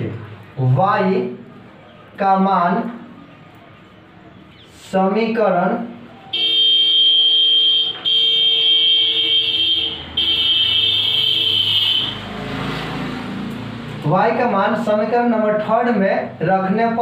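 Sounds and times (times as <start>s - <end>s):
loud horn blasts: 6.4s - 12.4s.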